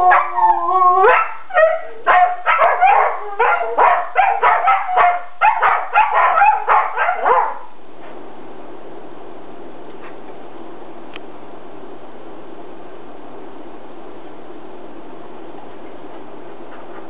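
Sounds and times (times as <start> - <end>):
dogs barking and yipping: 0.0 - 7.8
steady low hum: 0.0 - 17.0.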